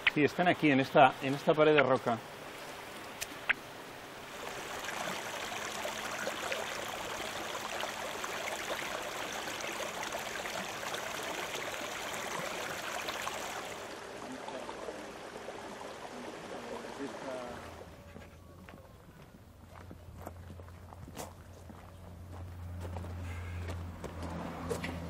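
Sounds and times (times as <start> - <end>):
river water flowing: 0.0 - 18.2.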